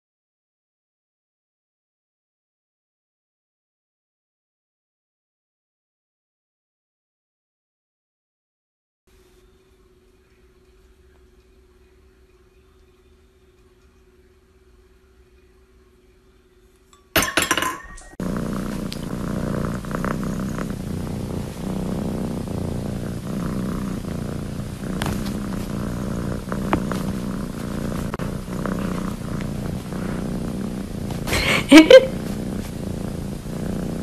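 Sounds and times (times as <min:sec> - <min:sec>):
cat purring: 0:18.0 - 0:34.0.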